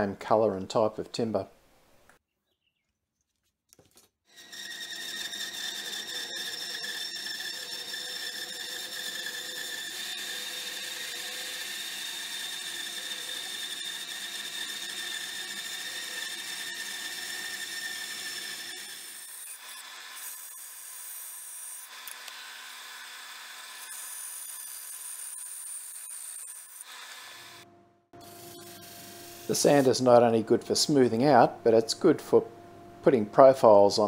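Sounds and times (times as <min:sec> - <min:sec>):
bandsaw cutting wood: 0:04.3 - 0:27.6, 0:28.2 - 0:30.4.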